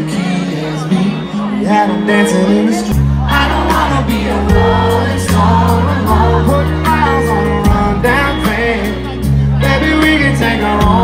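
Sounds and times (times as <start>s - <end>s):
electric guitar: 0.0s - 11.0s
person singing: 0.0s - 11.0s
sustained bass notes: 0.0s - 11.0s
steady drum beat: 3.4s - 8.9s.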